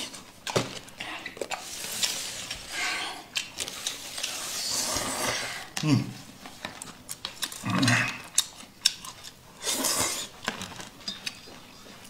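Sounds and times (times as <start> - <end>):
slurping noodles: 3.8 - 5.8, 9.6 - 10.4.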